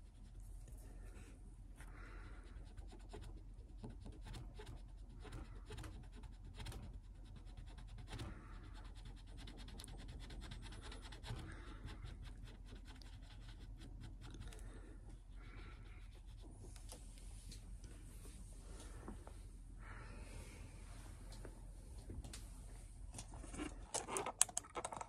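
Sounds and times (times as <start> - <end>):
cotton swab scratching wood: 2.6 - 14.6.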